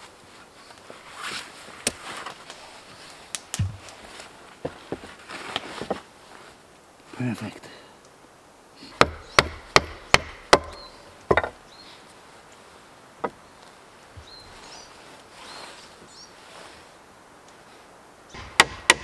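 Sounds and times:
tool knocking on wood: 0:09.0 - 0:11.6.

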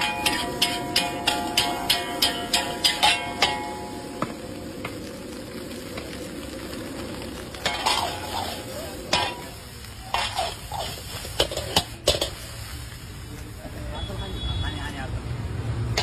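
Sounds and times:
metal spatula clanking on wok: 0:00.0 - 0:04.1, 0:07.6 - 0:12.4
rice sizzling in a wok: 0:00.0 - 0:16.0.

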